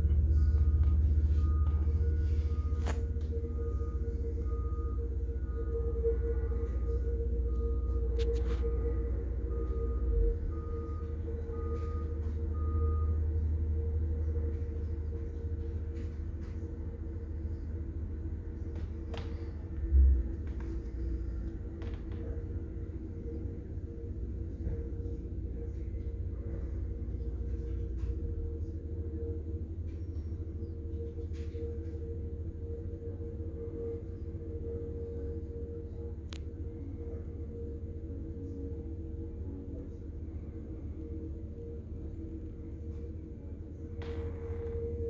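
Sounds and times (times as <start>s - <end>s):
backup alarm beeping: 0.0s - 45.0s
constant hum: 0.0s - 45.0s
roller engine running: 0.0s - 45.0s.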